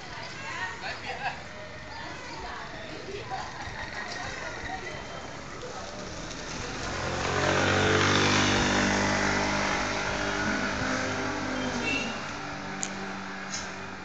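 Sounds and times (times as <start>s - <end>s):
motorbike engine passing: 5.8s - 14.0s.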